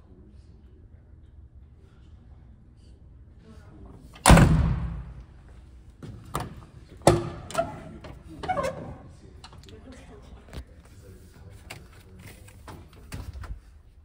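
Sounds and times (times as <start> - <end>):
heavy truck door slamming: 4.2 - 5.2.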